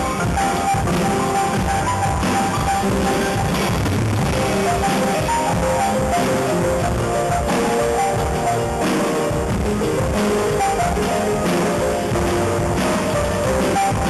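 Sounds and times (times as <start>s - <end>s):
drum kit beat: 0.0s - 14.0s
electronic keyboard: 0.0s - 14.0s.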